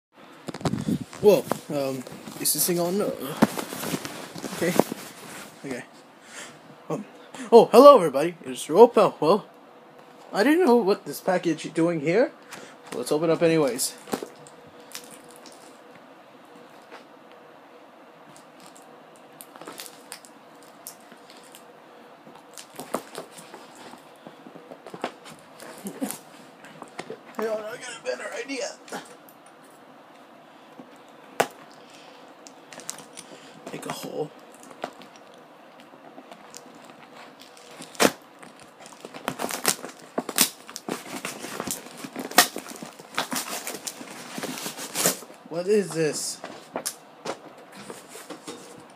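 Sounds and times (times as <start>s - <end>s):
faint steady hum: 0.2s - 48.9s
packaging crinkling and rustling: 0.5s - 5.8s, 13.8s - 15.8s, 18.4s - 21.7s, 22.3s - 27.4s, 31.4s - 45.4s
packaging crinkling and tearing: 19.4s - 21.6s, 22.4s - 24.1s, 36.2s - 45.4s.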